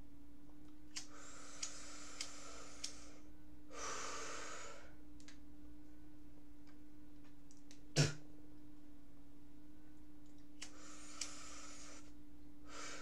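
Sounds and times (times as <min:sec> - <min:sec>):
low electrical hum: 0:00.0 - 0:13.0
man breathing: 0:01.0 - 0:05.0, 0:10.6 - 0:13.0.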